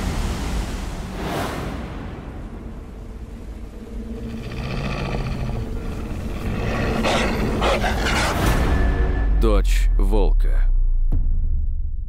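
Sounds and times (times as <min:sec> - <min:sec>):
wolf growling and snarling: 0:04.0 - 0:08.9.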